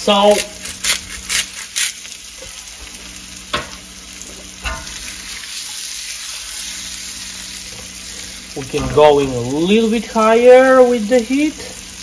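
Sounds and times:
onions sizzling in frying pan: 0:00.0 - 0:12.0
pan scraping on burner grate: 0:07.7 - 0:10.1.

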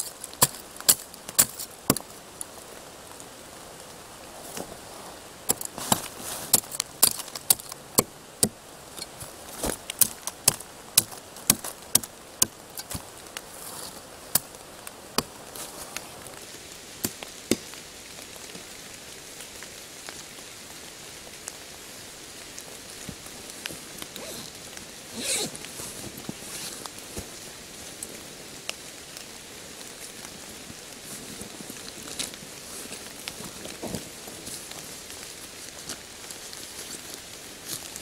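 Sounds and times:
twigs snapping and cracking: 0:00.0 - 0:02.5, 0:05.5 - 0:16.4.

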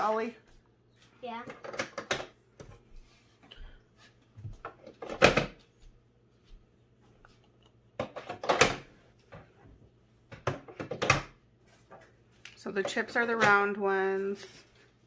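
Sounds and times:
plastic toys clicking on table: 0:01.4 - 0:02.4.

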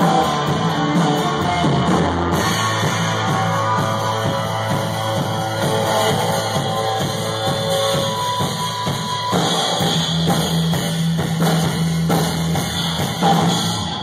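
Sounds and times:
drum hits: 0:00.0 - 0:14.0
live rock band playing: 0:00.0 - 0:14.0.

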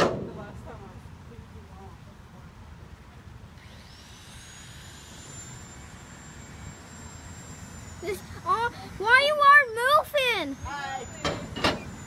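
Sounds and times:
thin high whine: 0:03.6 - 0:12.0
ride rumbling: 0:08.0 - 0:12.0.

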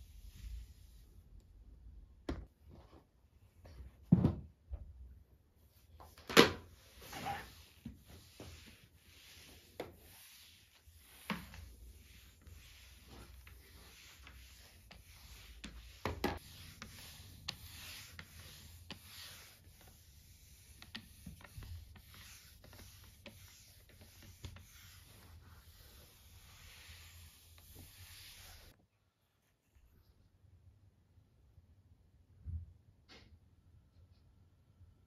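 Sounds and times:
mop swishing on hard floor: 0:05.6 - 0:28.8.

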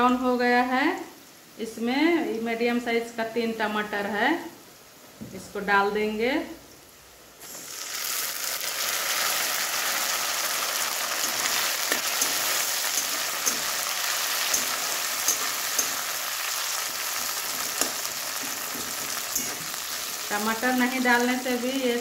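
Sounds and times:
food sizzling in hot oil: 0:07.4 - 0:22.0
metal spatula scraping a pan: 0:11.2 - 0:20.2.

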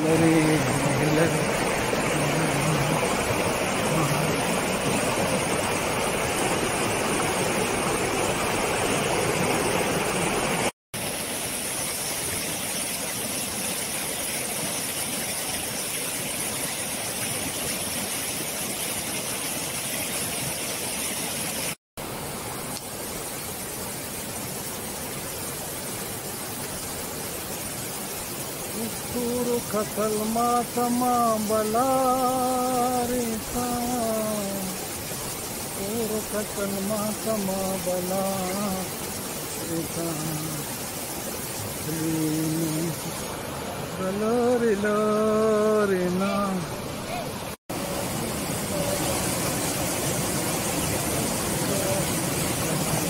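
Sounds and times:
stream water rushing: 0:00.0 - 0:53.0.

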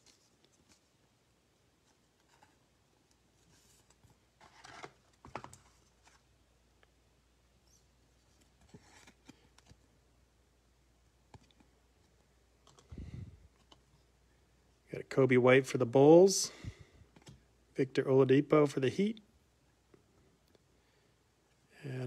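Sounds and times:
faint plastic rustling: 0:00.0 - 0:07.0, 0:07.6 - 0:10.0.

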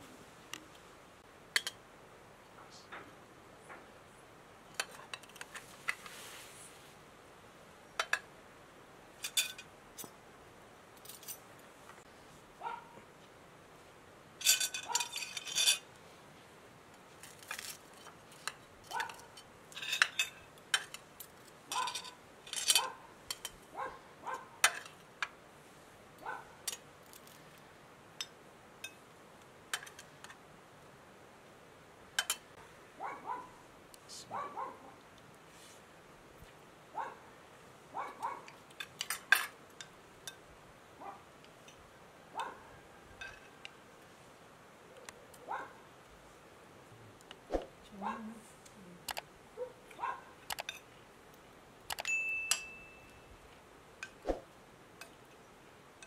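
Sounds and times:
cutlery clinking on plates: 0:04.7 - 0:05.6, 0:09.2 - 0:10.2, 0:14.4 - 0:15.9, 0:17.3 - 0:23.6, 0:24.6 - 0:25.1, 0:32.2 - 0:32.5, 0:38.6 - 0:40.4, 0:43.2 - 0:43.6, 0:51.9 - 0:53.2.

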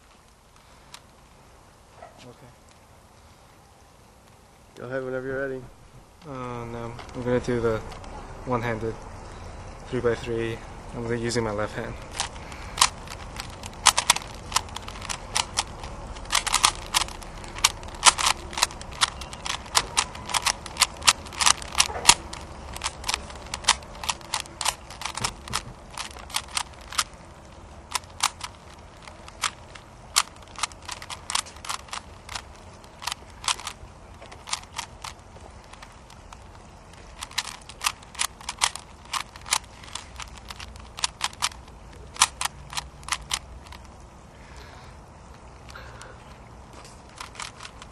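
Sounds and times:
puzzle cube clicking: 0:11.8 - 0:44.0, 0:45.6 - 0:47.9.

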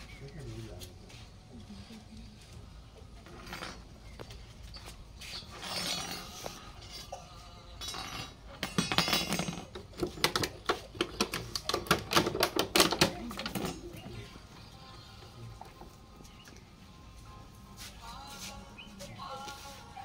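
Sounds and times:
metal and plastic clinking on concrete: 0:03.2 - 0:14.3.

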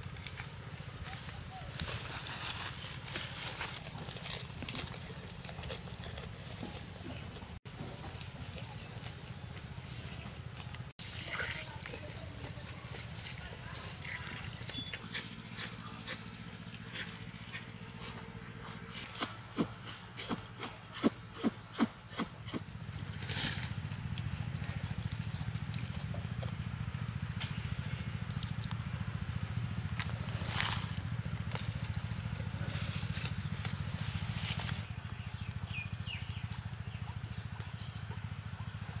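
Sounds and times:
goat rustling dry leaves: 0:00.0 - 0:06.9, 0:29.8 - 0:34.9
low motor hum: 0:00.0 - 0:39.0
bird chirp: 0:12.0 - 0:19.0.

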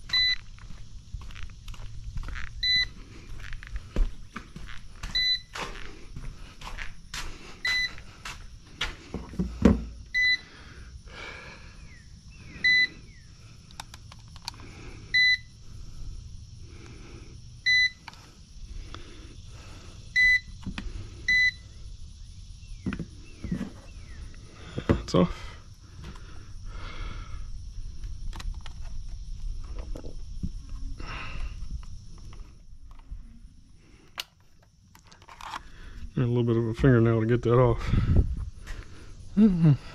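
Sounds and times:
short high warning beep: 0:00.1 - 0:00.4, 0:02.6 - 0:02.9, 0:07.6 - 0:08.0, 0:12.6 - 0:12.9, 0:20.2 - 0:20.5, 0:21.3 - 0:21.6
thump: 0:09.2 - 0:09.9.

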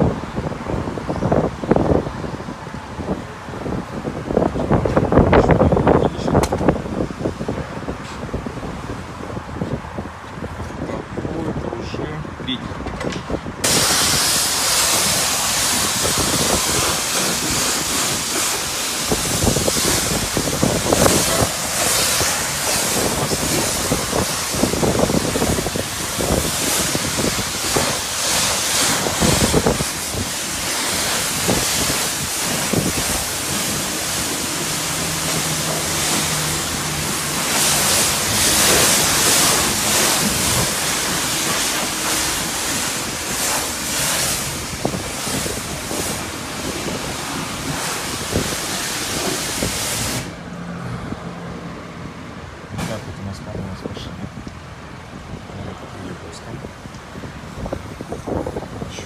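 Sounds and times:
pressure washer spraying water: 0:13.6 - 0:51.9.

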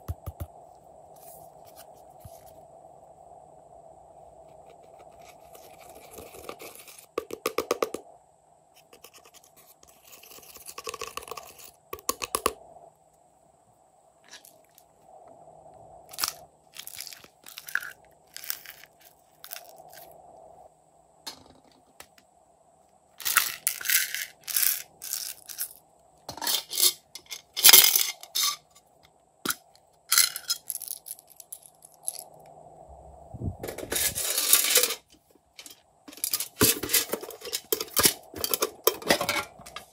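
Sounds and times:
plastic pieces clicking: 0:16.1 - 0:20.0, 0:23.2 - 0:25.8.

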